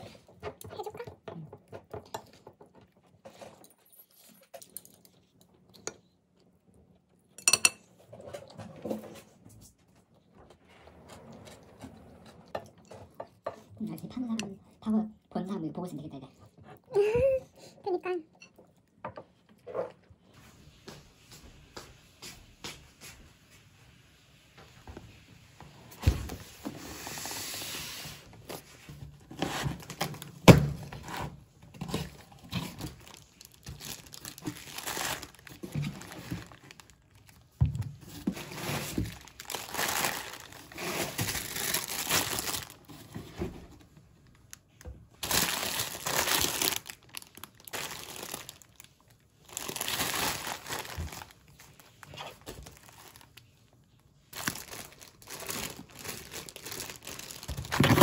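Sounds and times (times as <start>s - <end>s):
plastic bags crinkling: 29.6s - 30.4s, 31.9s - 43.1s, 44.2s - 58.0s.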